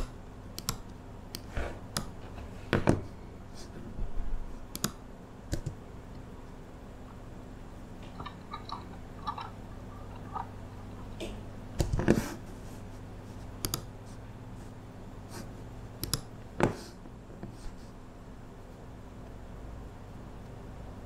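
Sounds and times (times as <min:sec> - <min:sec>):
keyboard and mouse clicks: 0:00.0 - 0:02.2, 0:04.7 - 0:05.8, 0:11.1 - 0:12.2, 0:13.6 - 0:13.9, 0:16.0 - 0:16.3
steady low hum: 0:00.0 - 0:21.0.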